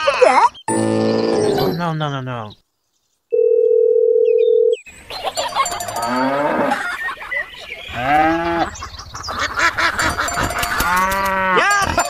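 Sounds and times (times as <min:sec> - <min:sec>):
farmyard background noise: 0:04.3 - 0:12.0
cattle mooing: 0:05.8 - 0:06.8, 0:07.9 - 0:08.7, 0:10.3 - 0:12.0
geese honking: 0:07.9 - 0:12.0.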